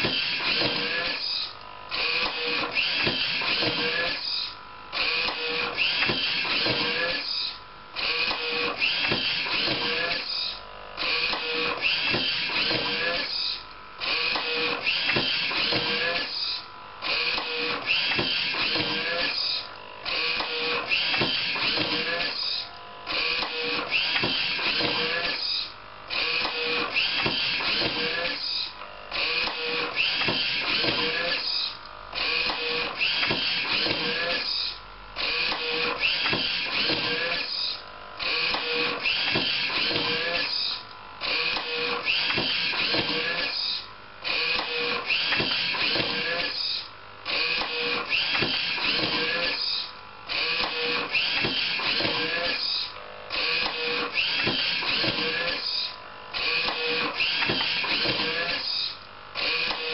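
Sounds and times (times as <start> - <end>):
mechanism whir and clatter: 0.0 - 59.9.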